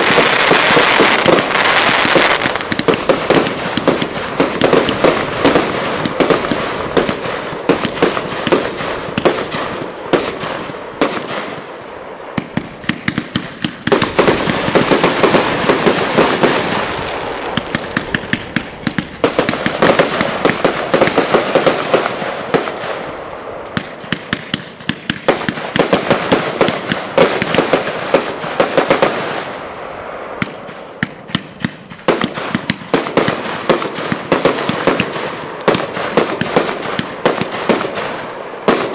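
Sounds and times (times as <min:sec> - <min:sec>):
fireworks barrage of shots: 0:00.0 - 0:38.9.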